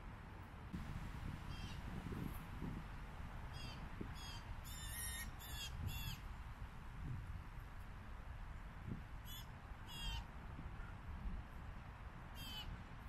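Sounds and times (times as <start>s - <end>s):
blue jay calling: 1.5s - 1.8s, 3.5s - 6.2s, 9.3s - 10.2s, 12.4s - 12.7s.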